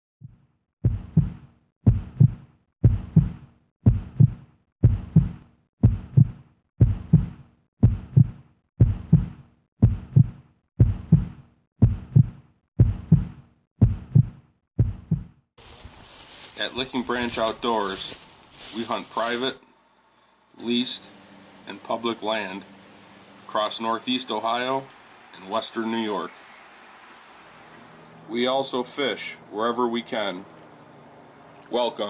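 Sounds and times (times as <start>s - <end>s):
heartbeat double thump: 0.2s - 15.4s.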